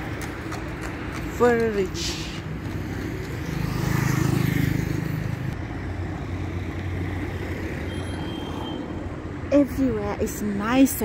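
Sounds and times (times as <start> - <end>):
vehicle engine passing: 0.0 - 7.9.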